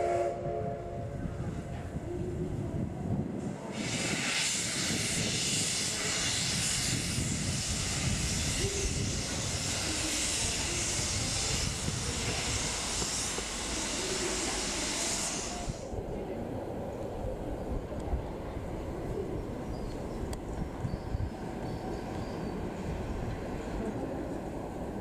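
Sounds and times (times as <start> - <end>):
steam locomotive hissing steam: 3.3 - 16.1.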